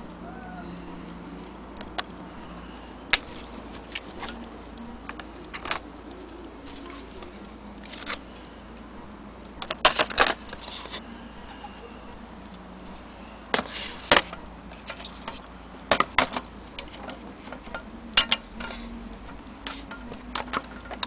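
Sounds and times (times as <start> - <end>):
clattering parts: 5.0 - 5.9, 9.6 - 11.8, 13.5 - 21.0.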